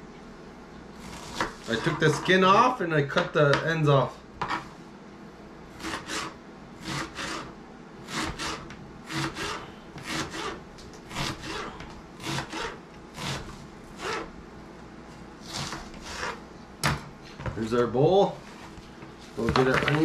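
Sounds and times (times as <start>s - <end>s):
knife slicing onion on cutting board: 1.0s - 2.3s, 4.4s - 4.7s, 5.8s - 14.3s, 15.4s - 16.4s.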